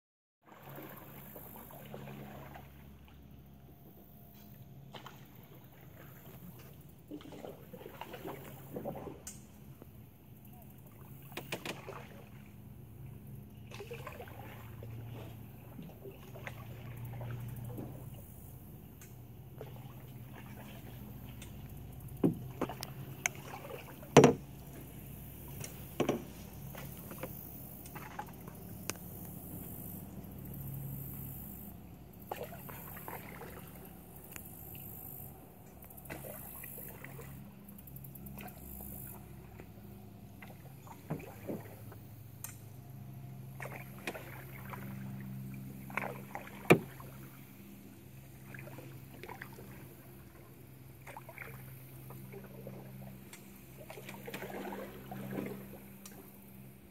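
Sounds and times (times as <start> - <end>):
canoe paddle in water: 0.4 - 56.9
paddle knocking against canoe hull: 22.2 - 28.3, 45.9 - 47.2.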